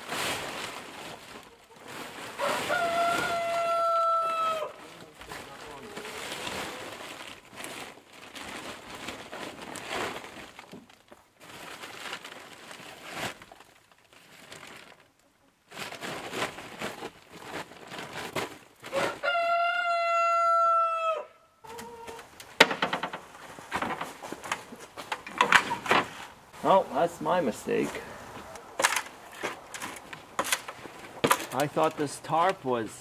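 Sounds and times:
plastic tarp crinkling: 0:00.0 - 0:04.0, 0:04.8 - 0:19.2, 0:22.1 - 0:33.0
rooster crowing: 0:02.4 - 0:04.8, 0:18.9 - 0:22.0.

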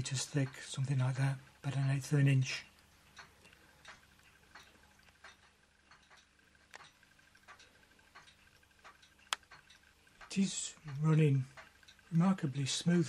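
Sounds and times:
quiet room hum: 0:00.0 - 0:13.0
engine linkage clicks: 0:03.1 - 0:12.1.

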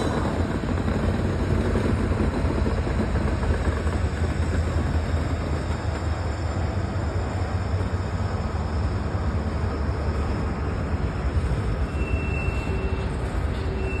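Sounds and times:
freight train rumbling past: 0:00.0 - 0:14.0
faint high squeal: 0:11.4 - 0:14.0.

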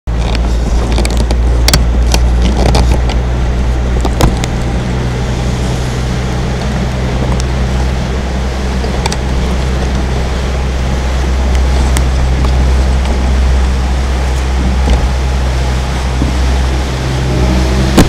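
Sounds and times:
motorboat engine drone: 0:00.1 - 0:18.0
water and wind rush: 0:00.1 - 0:18.0.

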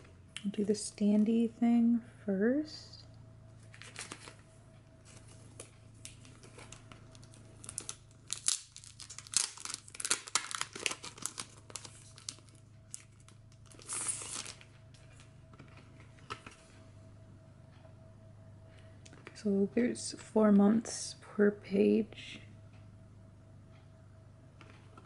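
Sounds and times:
plastic sleeve crinkling: 0:03.7 - 0:04.4, 0:05.1 - 0:16.6.

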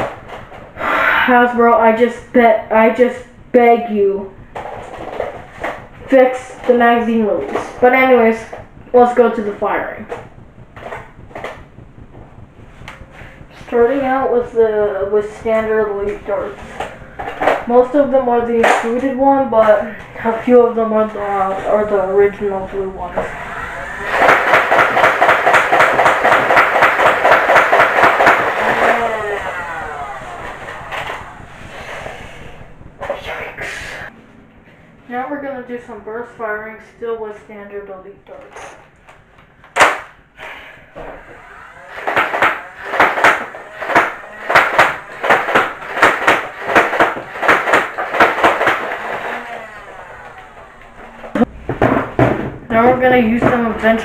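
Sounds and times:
toy blaster flywheels whirring: 0:22.8 - 0:32.7, 0:40.9 - 0:51.5
rapid clatter of darts firing: 0:23.6 - 0:31.4, 0:41.1 - 0:53.6.

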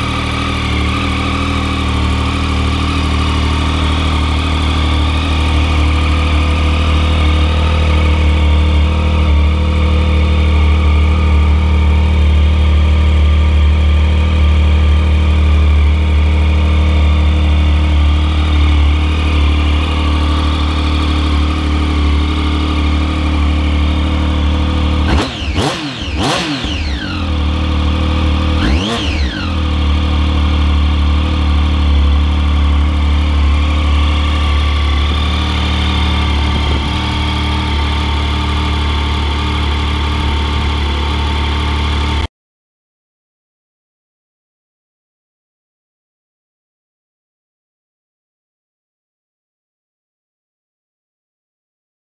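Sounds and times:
motorcycle engine idling: 0:00.0 - 0:42.3
motorcycle throttle blips: 0:15.4 - 0:42.2.

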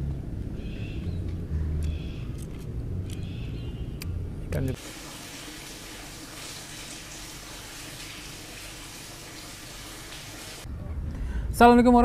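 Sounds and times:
tap water splashing: 0:04.8 - 0:10.6.

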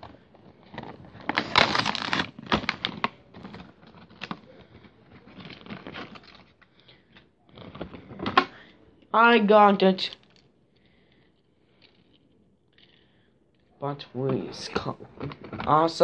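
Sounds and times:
plastic blister packaging crinkling: 0:00.0 - 0:08.8, 0:12.8 - 0:16.0.

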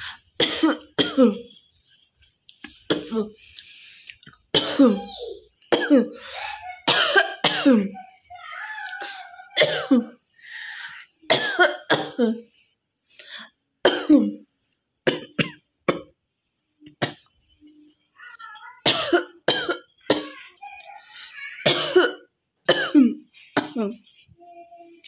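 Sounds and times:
woman coughing: 0:00.4 - 0:01.6, 0:02.9 - 0:03.3, 0:04.5 - 0:05.1, 0:05.7 - 0:08.0, 0:09.6 - 0:10.2, 0:11.3 - 0:12.4, 0:13.8 - 0:14.4, 0:18.8 - 0:20.5, 0:21.6 - 0:24.0.

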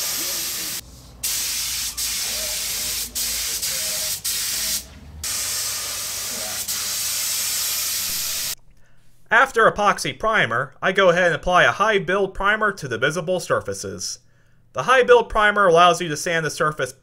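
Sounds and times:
spray gun hissing: 0:00.0 - 0:08.6.

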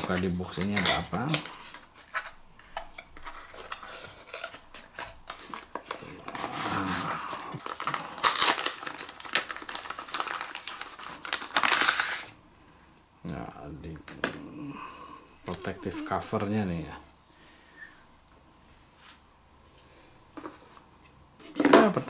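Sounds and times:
plastic wrapping crinkling: 0:00.0 - 0:12.3.

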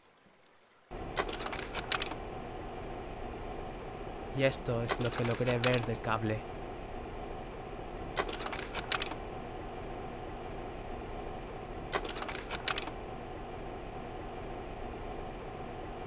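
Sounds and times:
projector fan hum: 0:00.9 - 0:16.0
slide-change mechanism clicks: 0:01.1 - 0:02.3, 0:04.8 - 0:06.0, 0:08.1 - 0:09.3, 0:11.9 - 0:13.0.

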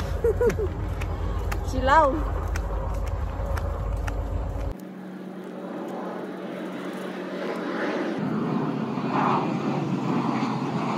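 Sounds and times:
engine rumble passing: 0:00.0 - 0:10.9.

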